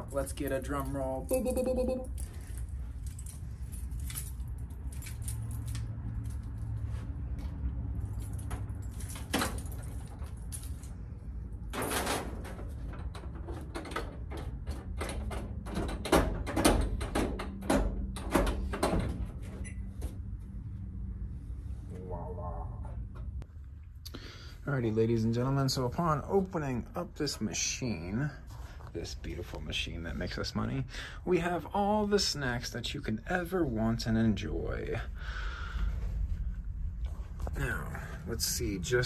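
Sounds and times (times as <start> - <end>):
keys jangling: 0.0 - 6.8, 8.0 - 11.1
steady low hum: 14.0 - 39.0.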